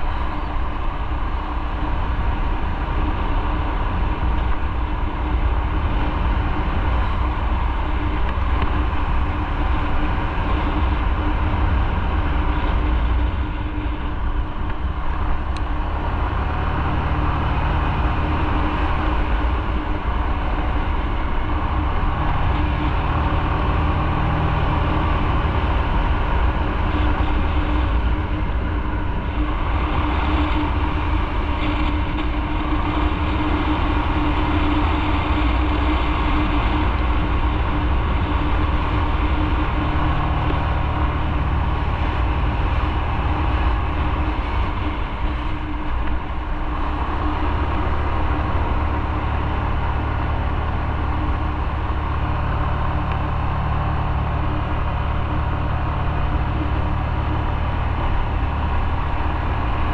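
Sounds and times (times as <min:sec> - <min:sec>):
motorcycle engine: 0:00.0 - 0:59.9
wind rush: 0:00.0 - 0:59.9.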